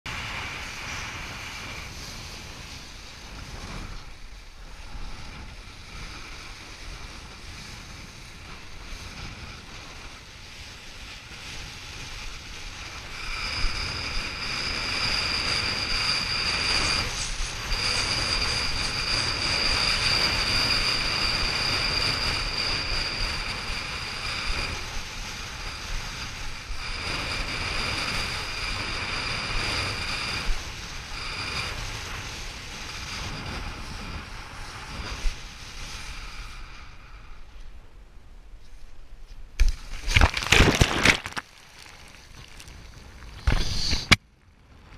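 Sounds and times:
strong wind buffeting microphone: 0.1s - 38.4s
steady high whistle: 12.8s - 25.9s
water rushing and splashing: 39.6s - 43.9s.

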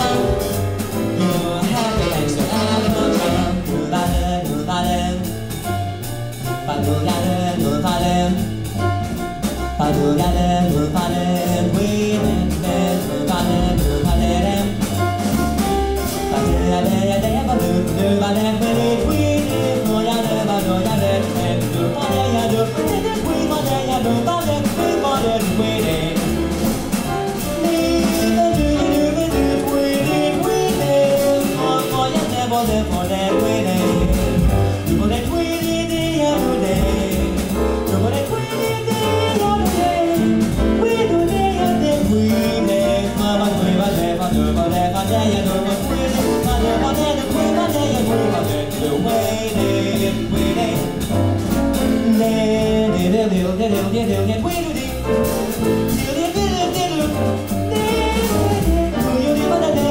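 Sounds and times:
saxophone: 0.0s - 3.8s, 56.1s - 59.9s
drum kit with cymbals: 0.0s - 59.9s
upright double bass: 0.0s - 59.9s
man singing into a microphone: 1.1s - 5.6s, 6.6s - 8.7s, 9.8s - 15.2s, 16.3s - 26.6s, 27.4s - 51.1s, 51.8s - 59.9s.

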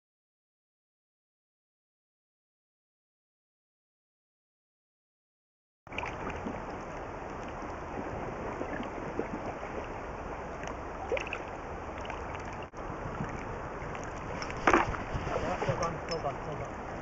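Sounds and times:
river water rushing: 5.9s - 17.0s
faint splashes and knocks: 10.6s - 16.7s
wind noise on microphone: 12.6s - 17.0s.

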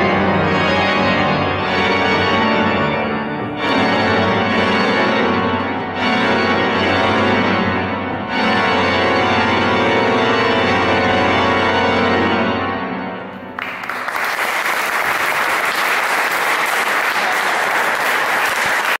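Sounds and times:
organ chord: 0.0s - 18.6s
audience applause: 13.6s - 19.0s.

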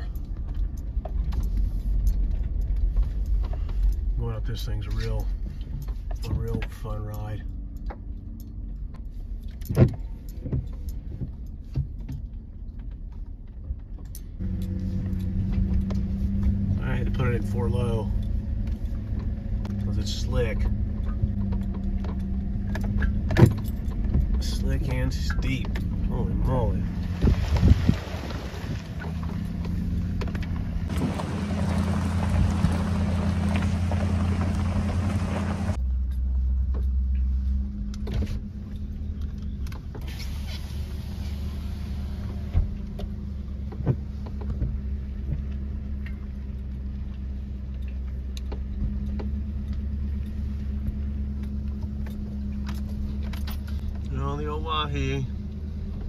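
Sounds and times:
knocks and rattles from truck: 9.6s - 14.4s, 17.8s - 35.8s
truck engine labouring: 14.4s - 56.0s
knocks and rattles: 17.8s - 26.2s.

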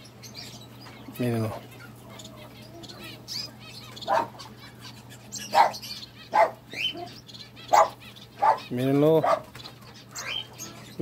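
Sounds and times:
small birds chirping: 0.0s - 11.0s
dog barking: 4.1s - 4.4s, 5.5s - 6.6s, 7.7s - 9.5s.

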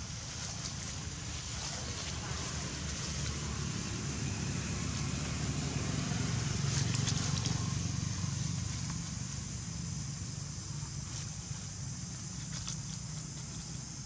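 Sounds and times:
dry leaves crackling: 0.0s - 14.0s.

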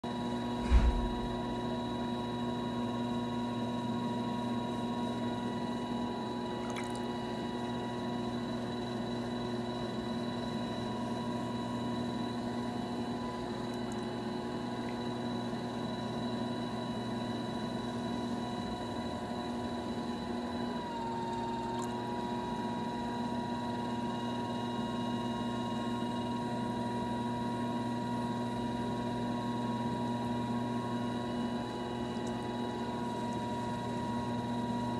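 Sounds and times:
pottery wheel motor humming: 0.2s - 34.9s
thump: 0.6s - 1.7s.

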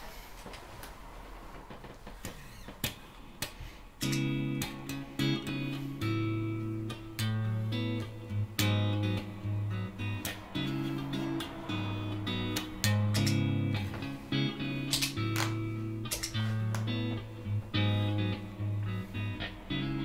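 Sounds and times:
guitar handling clicks: 2.2s - 9.4s, 10.0s - 11.6s, 12.5s - 20.0s
electric guitar blues chords: 4.0s - 20.0s.

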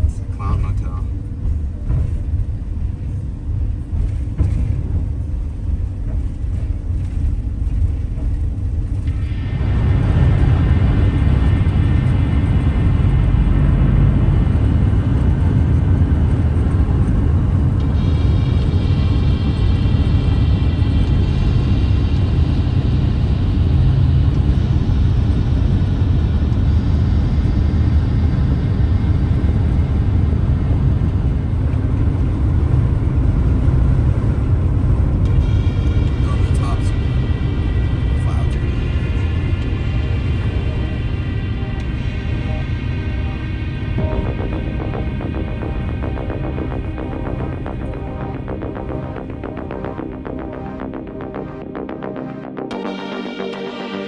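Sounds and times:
road and wind noise in vehicle: 0.0s - 49.8s.

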